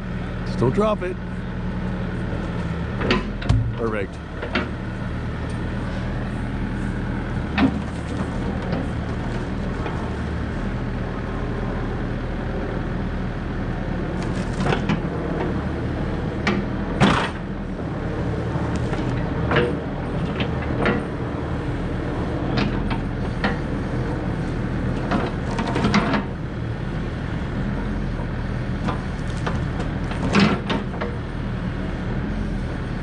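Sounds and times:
excavator engine running: 0.0 - 33.0.

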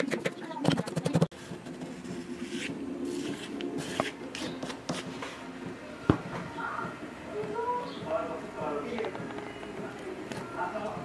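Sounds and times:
knife chopping and scraping garlic: 0.0 - 5.1.

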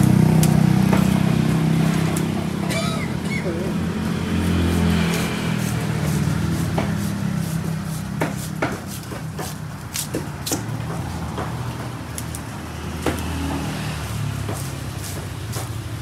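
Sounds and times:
low engine hum: 0.0 - 9.9
knife scraping fish scales: 4.4 - 10.6, 14.5 - 16.0.

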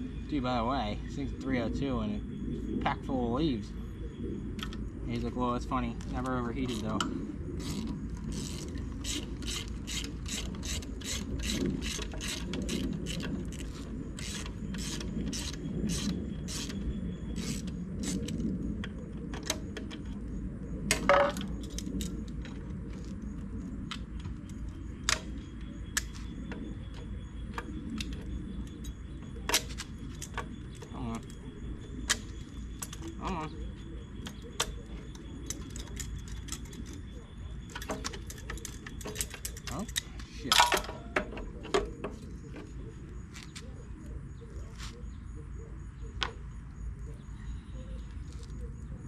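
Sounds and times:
ratchet wrench clicking: 7.6 - 16.8.

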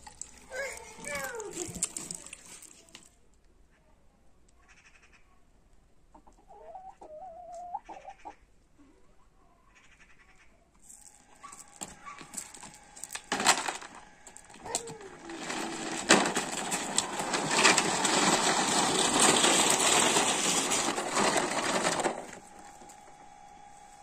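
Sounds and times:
toy trucks rattling on gravel: 0.0 - 3.2, 10.8 - 23.2.

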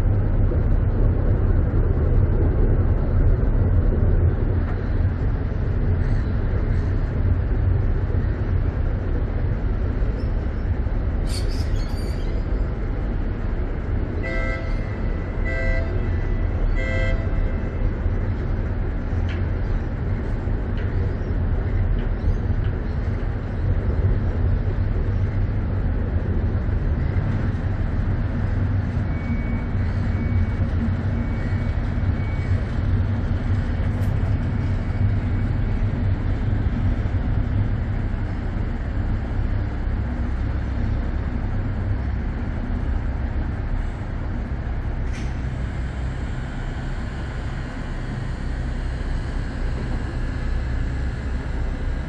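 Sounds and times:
low rumble of engines and traffic: 0.0 - 52.0
faint high whine: 27.4 - 42.1, 43.6 - 52.0.

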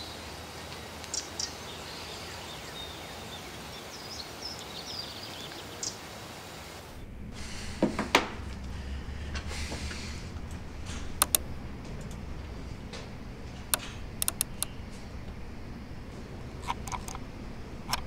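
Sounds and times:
outdoor ambience: 0.0 - 18.0
sharp clicks: 9.4 - 18.0
soft ticks: 11.2 - 12.2, 13.7 - 15.4.

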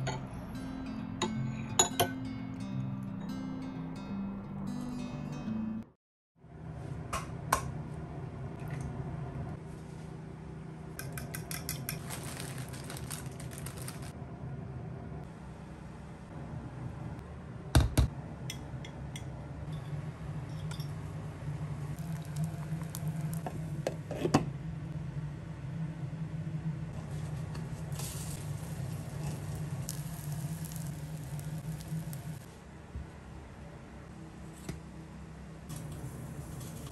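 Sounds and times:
low steady hum: 6.5 - 36.9
toast sizzling in a frying pan: 22.0 - 23.5, 27.7 - 32.5.

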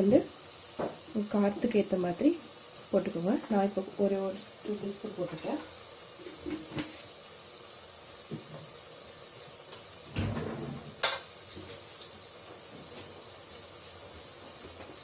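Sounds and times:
food sizzling in pressure cooker: 0.0 - 15.0.

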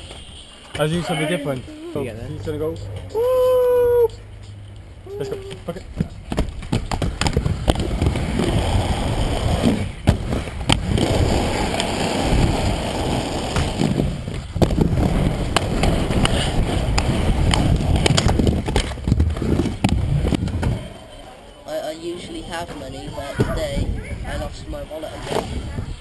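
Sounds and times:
skate wheels rolling on concrete: 0.0 - 26.0
skates clacking on ramp edges: 9.2 - 20.8.

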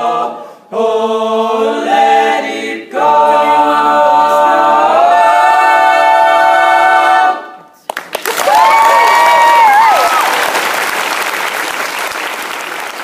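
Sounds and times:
male a cappella singing: 0.0 - 7.4
applause: 7.8 - 13.0.

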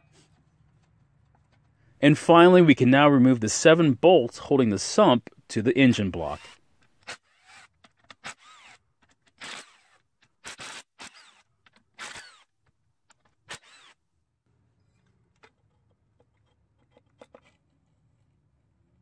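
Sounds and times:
cordless drill whirring: 6.4 - 8.8, 9.4 - 12.5, 13.5 - 14.0.

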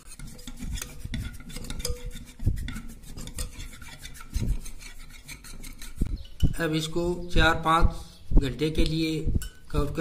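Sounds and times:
whisk knocking bowl: 0.0 - 6.6
wire whisk scraping glass bowl: 0.0 - 6.6.

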